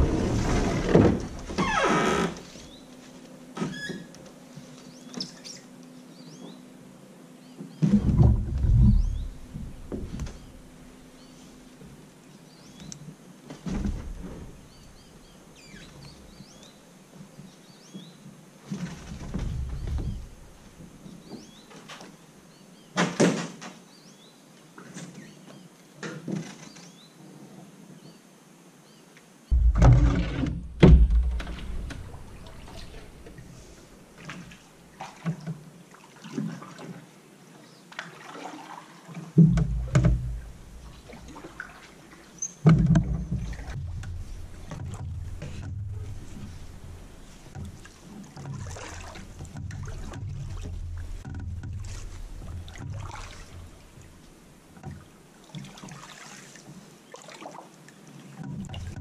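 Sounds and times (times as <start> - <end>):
small knocks and rustles: 7.6 - 12.0, 12.8 - 22.2, 29.5 - 35.7, 39.2 - 56.9, 58.3 - 59.0
canoe thumping wooden pilings: 7.8 - 11.1, 18.7 - 22.1, 29.5 - 35.6, 39.4 - 56.0, 58.4 - 59.0
low rumble: 29.5 - 34.1.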